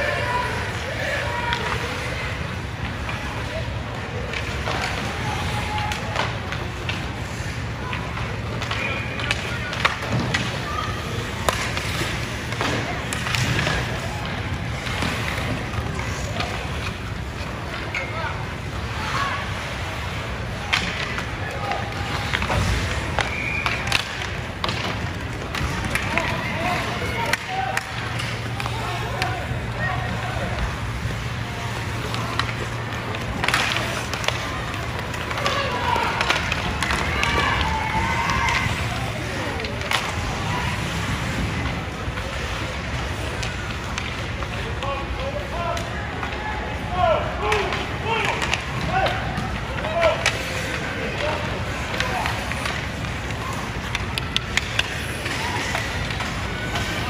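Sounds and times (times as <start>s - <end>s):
skates scraping ice: 0.0s - 57.0s
hockey sticks and puck knocks: 4.2s - 46.5s, 47.4s - 57.0s
distant voices shouting: 25.7s - 41.9s.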